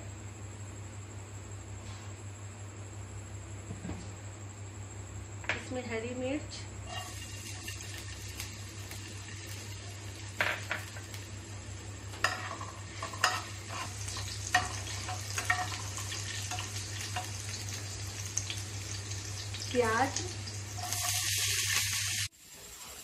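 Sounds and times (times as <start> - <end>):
chillies sizzling in hot oil: 6.8 - 23.0
spatula scraping and tapping pan: 12.1 - 17.4.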